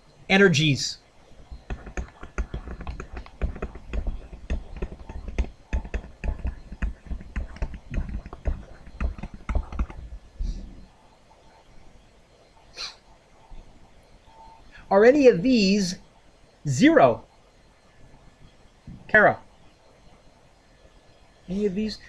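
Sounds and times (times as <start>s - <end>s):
stylus tapping on tablet screen: 1.6s - 10.1s.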